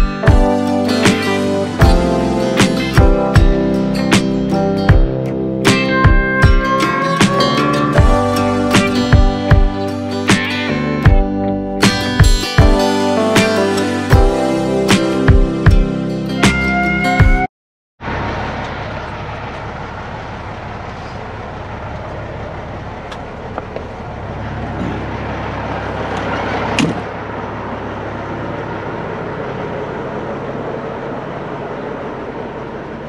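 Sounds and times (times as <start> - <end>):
diesel engine idling: 0.0 - 17.1, 18.0 - 33.0.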